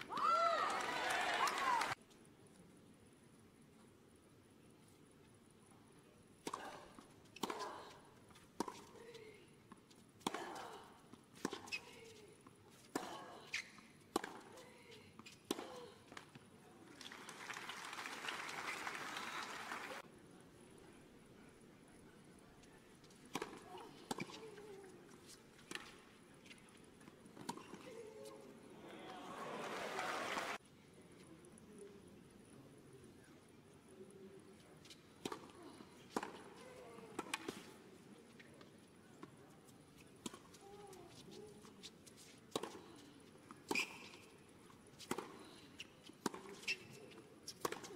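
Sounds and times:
crowd applause: 0:00.6 - 0:02.0, 0:17.0 - 0:20.0, 0:29.1 - 0:30.6
faint crowd murmur: 0:14.5 - 0:47.9.

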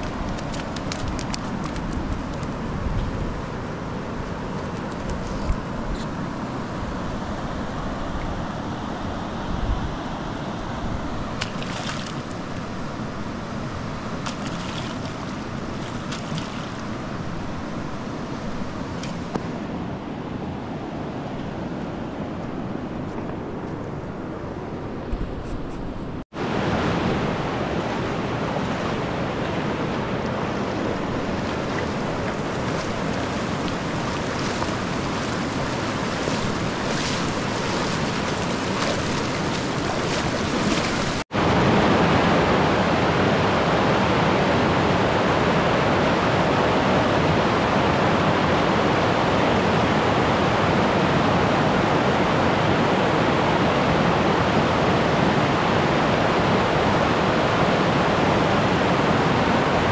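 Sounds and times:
river water rushing: 0:26.4 - 0:59.9.

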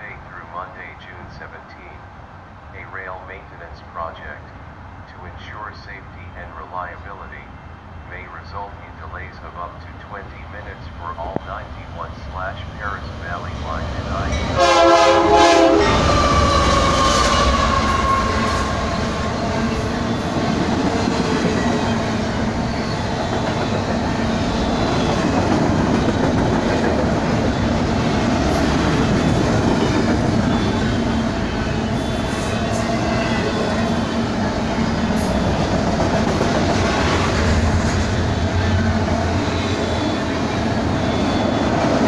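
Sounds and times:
freight train rumble: 0:00.0 - 0:42.0
locomotive horn: 0:14.5 - 0:19.2.

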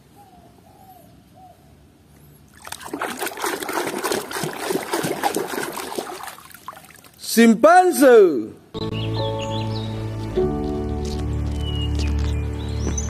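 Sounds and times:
water splashing in a tub: 0:02.5 - 0:07.2.

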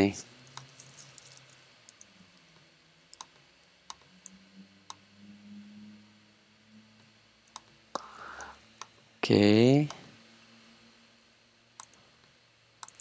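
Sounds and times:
faint low hum: 0:00.0 - 0:13.0
computer mouse clicking: 0:03.1 - 0:05.0, 0:11.8 - 0:12.0, 0:12.8 - 0:13.0.

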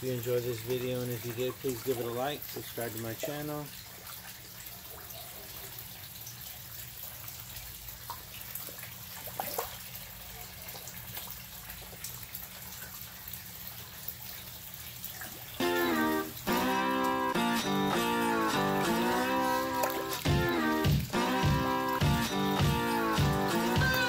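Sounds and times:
fish splashing and slurping: 0:00.0 - 0:24.0
water trickling: 0:00.0 - 0:24.0.

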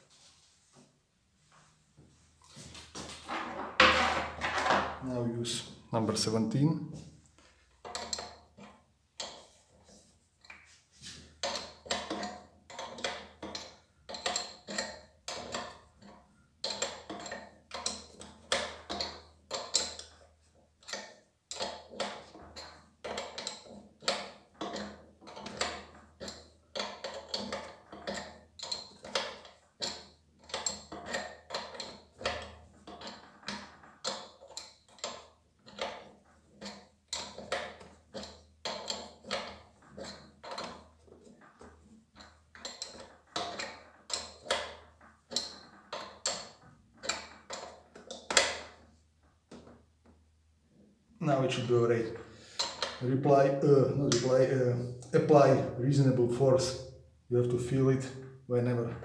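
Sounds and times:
spanner clinking on metal fitting: 0:11.4 - 0:20.2, 0:20.8 - 0:35.9.

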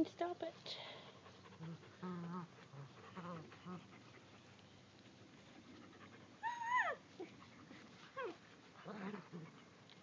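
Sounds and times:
puppies whining: 0:05.5 - 0:09.7
puppy yelping: 0:06.4 - 0:07.3.

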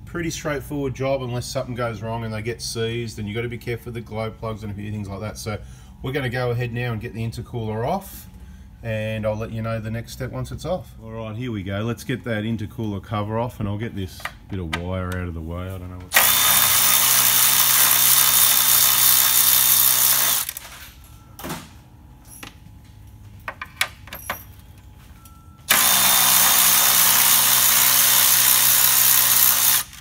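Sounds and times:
electric ratchet motor hum: 0:16.1 - 0:20.6, 0:25.7 - 0:30.0.

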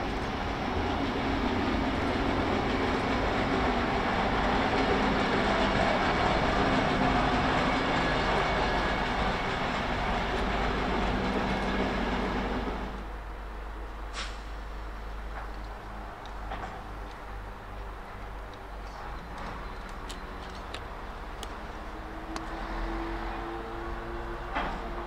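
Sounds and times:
wheels rumbling on rails: 0:00.0 - 0:25.0
diesel engine passing: 0:21.2 - 0:25.0.

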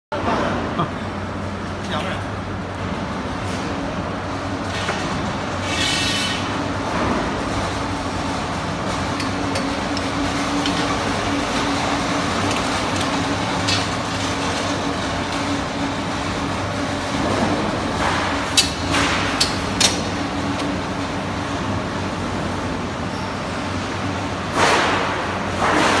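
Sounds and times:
welding machine humming: 0:07.4 - 0:22.8.

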